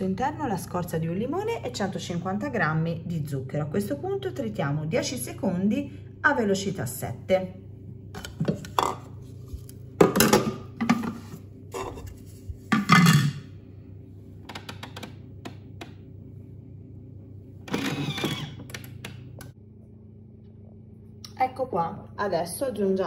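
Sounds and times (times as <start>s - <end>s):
kitchen knocks and clatters: 10.0s - 13.4s
food processor low hum: 13.5s - 21.3s.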